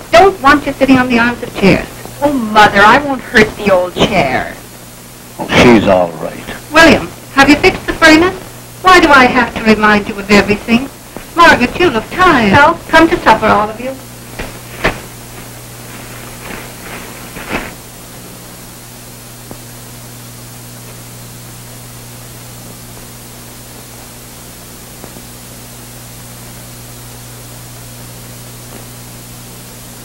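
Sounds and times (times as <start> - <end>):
film soundtrack hiss and hum: 0.0 - 30.0.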